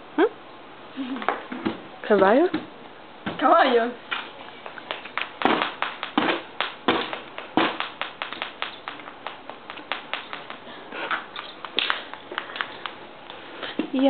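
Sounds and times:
stick tapping and knocking: 4.6s - 13.0s.

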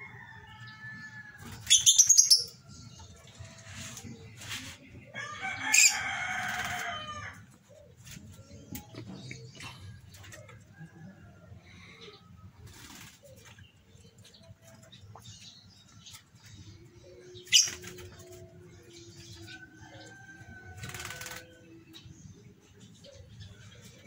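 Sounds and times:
birds chirping: 0.0s - 24.0s
birds flapping wings: 6.3s - 7.0s, 20.8s - 21.6s.

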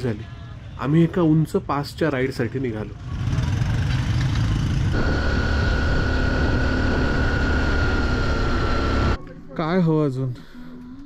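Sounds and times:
motorbike engine running: 3.1s - 9.2s
steady high whine: 4.9s - 9.2s.

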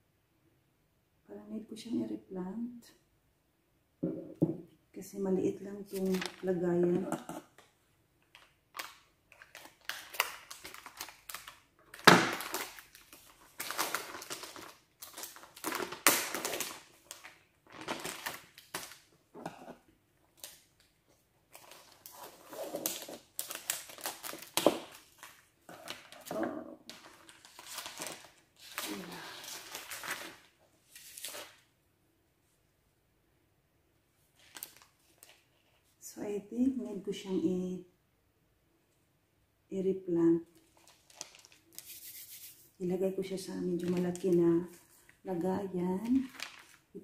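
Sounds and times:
plant leaves crinkling and rustling: 5.9s - 7.0s, 45.9s - 46.9s.

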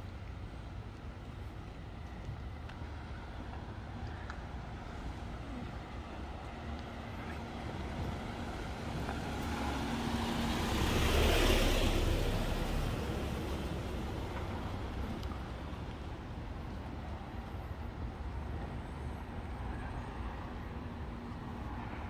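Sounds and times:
vehicle driving past: 7.9s - 14.9s.

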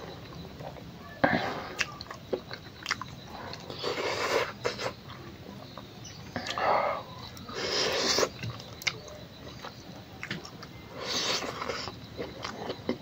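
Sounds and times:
chewing and mouth smacking: 1.8s - 5.3s, 7.3s - 13.0s.

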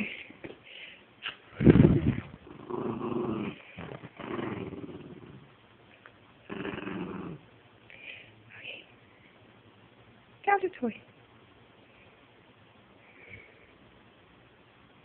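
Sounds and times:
small dog play-growling: 1.3s - 5.6s, 6.4s - 7.5s.

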